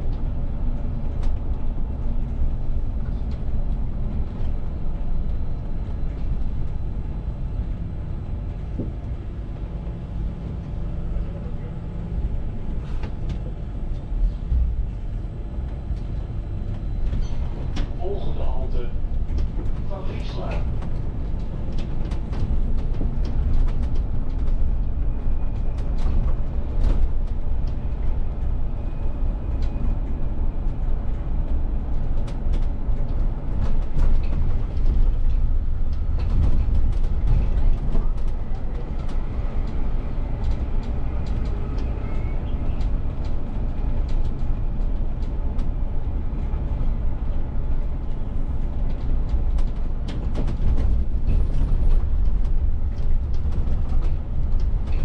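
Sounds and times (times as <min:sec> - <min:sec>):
bus drivetrain and road rumble: 0:00.0 - 0:55.0
clicks and rattles in cab: 0:48.7 - 0:55.0.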